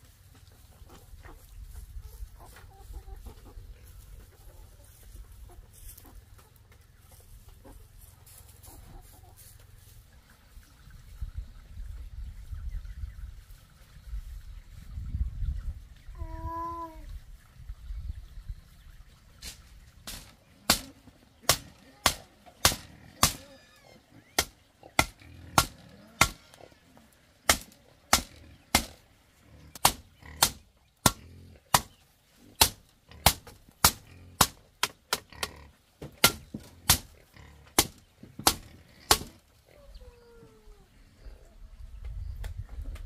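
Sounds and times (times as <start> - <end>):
machete chopping bamboo: 20.1 - 23.4, 24.4 - 26.5, 27.4 - 29.0, 29.8 - 32.0, 32.6 - 35.4, 36.0 - 37.1, 37.7 - 39.4.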